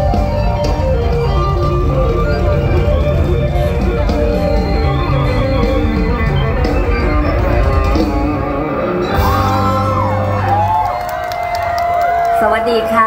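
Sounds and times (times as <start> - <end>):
heavy bass and drum beat: 0.0 - 10.9
electric keyboard: 0.0 - 12.3.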